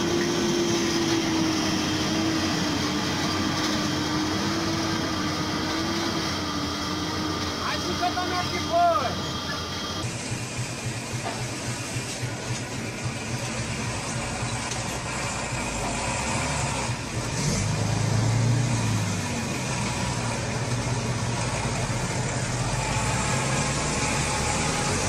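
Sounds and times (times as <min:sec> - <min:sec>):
truck engine humming: 0:00.0 - 0:25.0.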